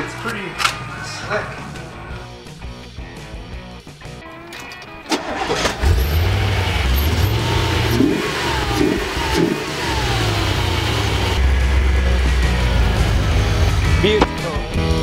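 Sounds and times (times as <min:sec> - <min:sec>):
car engine cranking and starting: 0:04.6 - 0:14.5
car engine revving: 0:05.1 - 0:15.0
car engine idling: 0:05.2 - 0:15.0.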